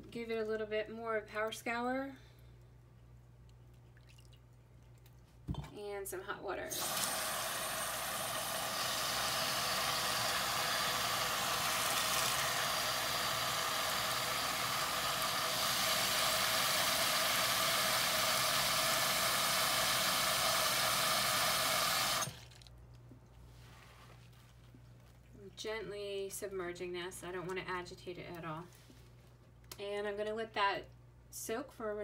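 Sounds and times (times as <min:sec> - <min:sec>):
tap water pouring into basin: 0:03.9 - 0:04.5.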